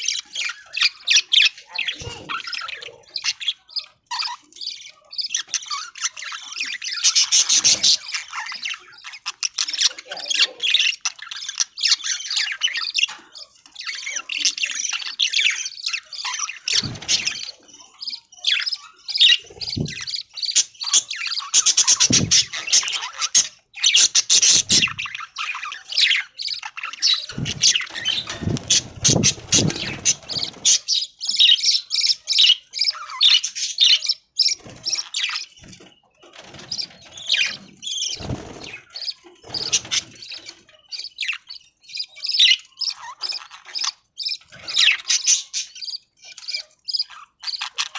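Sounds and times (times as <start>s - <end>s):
budgies chattering: 0.0s - 47.9s
low thumps: 22.0s - 22.5s, 27.3s - 30.0s.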